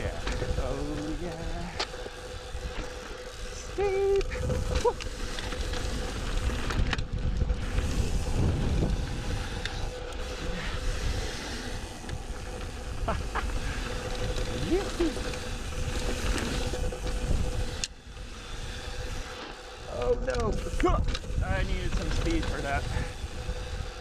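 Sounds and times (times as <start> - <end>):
bike rattling and knocking: 0.0 - 24.0
tyres rolling over dirt and rock: 0.0 - 24.0
wind on microphone: 3.9 - 19.3, 20.4 - 24.0.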